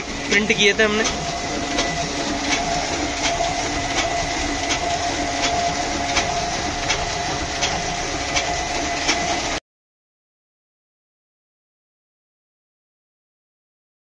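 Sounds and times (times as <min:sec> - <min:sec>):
printing press clack: 0:00.0 - 0:09.6
printing press hum: 0:00.0 - 0:09.6.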